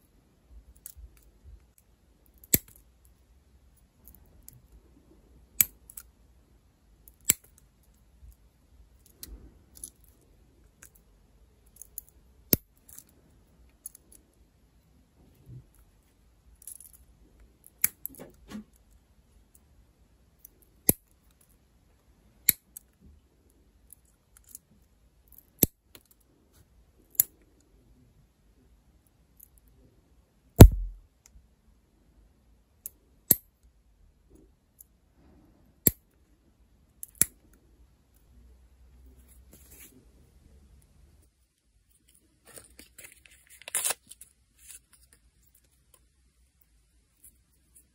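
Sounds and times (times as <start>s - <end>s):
loud knock: 30.6s - 31.0s
nail tool clicks and snips: 30.6s - 31.0s.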